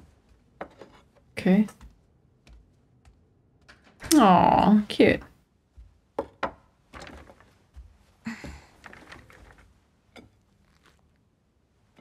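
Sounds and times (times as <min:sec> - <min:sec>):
faint handling clicks and rustles: 0:06.9 - 0:11.2.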